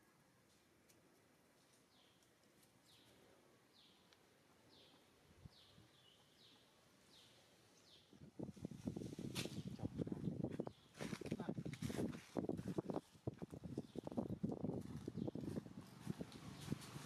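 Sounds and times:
faint bird chirps: 1.8 - 8.2.

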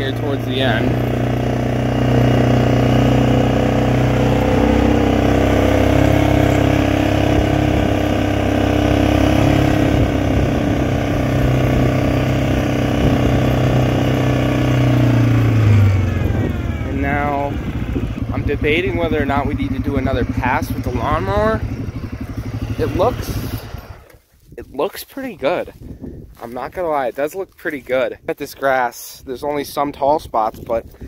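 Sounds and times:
atv engine droning: 0.0 - 24.2.

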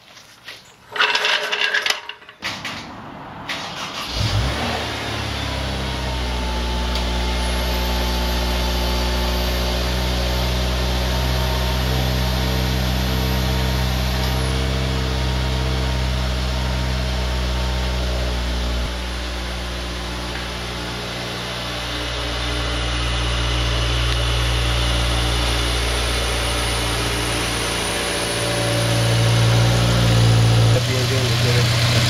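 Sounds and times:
car engine starting and idling: 2.4 - 32.0.

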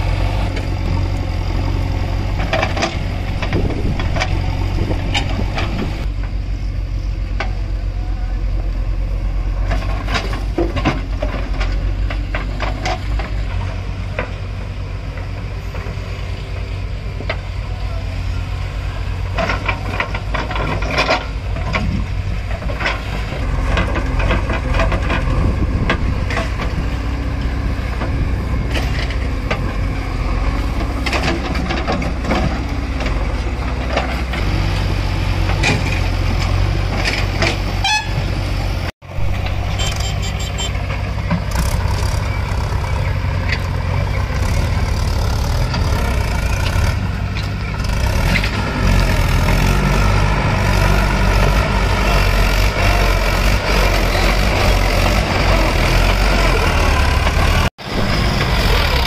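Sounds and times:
knocks of digging and dumping soil: 0.0 - 6.4, 9.5 - 16.1, 19.1 - 59.0
backhoe loader diesel engine: 0.0 - 59.0
tractor diesel engine pulling: 0.0 - 59.0.

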